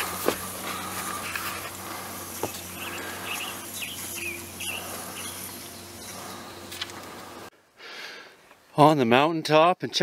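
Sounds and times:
steady low hum: 0:00.0 - 0:07.8
bird chirping: 0:00.7 - 0:07.3.

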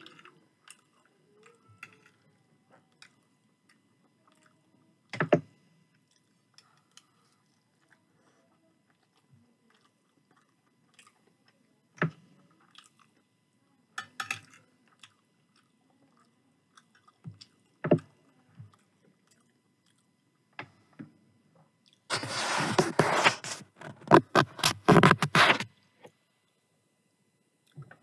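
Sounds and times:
chewing: 0:00.0 - 0:04.7, 0:05.9 - 0:13.3, 0:14.5 - 0:20.3, 0:21.8 - 0:22.1
hand rubbing on microphone: 0:22.1 - 0:25.6.

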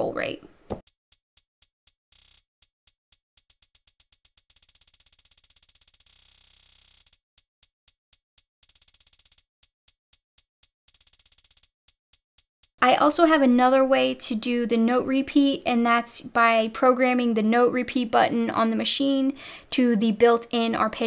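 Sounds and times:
electronic hi-hat roll: 0:00.9 - 0:12.9.

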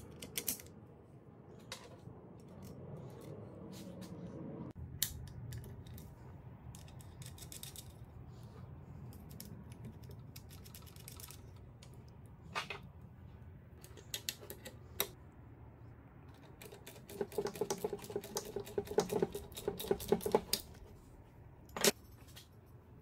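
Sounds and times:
metal nuts and bolts clicking: 0:00.0 - 0:00.9, 0:05.0 - 0:08.1.

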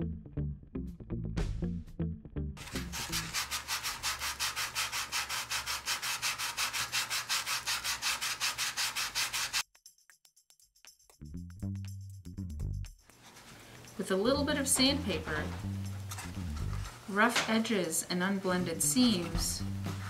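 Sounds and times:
background music with a beat: 0:00.2 - 0:02.2, 0:09.6 - 0:13.2
sandpaper rubbing on foam clay: 0:02.6 - 0:09.6.

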